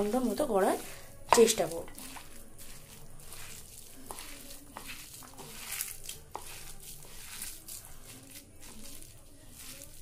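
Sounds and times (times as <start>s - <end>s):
hand squelching damp mixture: 0.0s - 10.0s.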